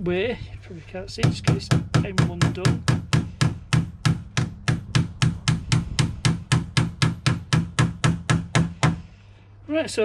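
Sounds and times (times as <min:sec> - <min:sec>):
hammer driving nail into wood: 0:01.2 - 0:09.0.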